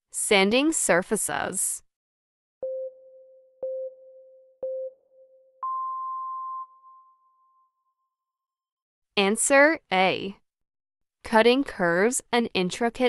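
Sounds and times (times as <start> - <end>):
short low beeps: 2.6 - 7.6
long higher beep: 2.6 - 7.9.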